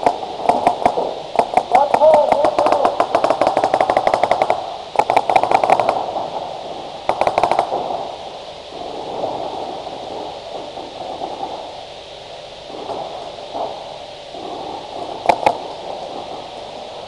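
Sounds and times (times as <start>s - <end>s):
paintball markers firing: 0.0s - 6.0s, 7.1s - 7.7s.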